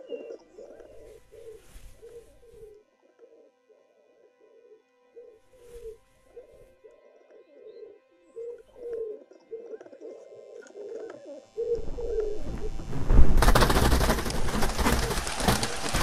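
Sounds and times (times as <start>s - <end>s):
pigeons cooing: 0.0s - 16.0s
loud rushing noise: 12.3s - 16.0s.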